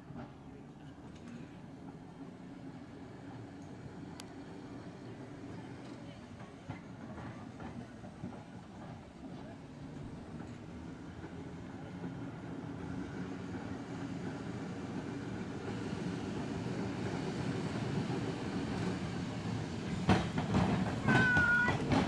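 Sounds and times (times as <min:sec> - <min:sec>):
tram rumbling along street: 0:00.0 - 0:22.0
wheels clattering over rail joints: 0:17.9 - 0:22.0.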